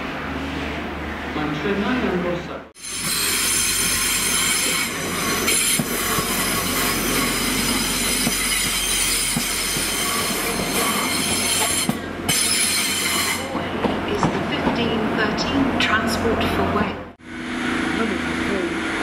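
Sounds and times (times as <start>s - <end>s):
low train hum: 0.0s - 19.0s
train wheels squealing: 2.8s - 13.5s.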